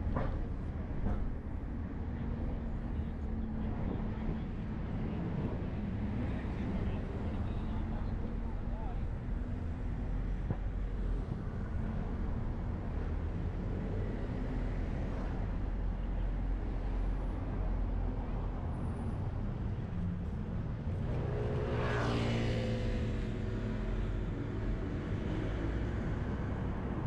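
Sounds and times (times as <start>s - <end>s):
road traffic rumble: 0.0s - 27.0s
motorcycle passing by: 21.2s - 23.7s.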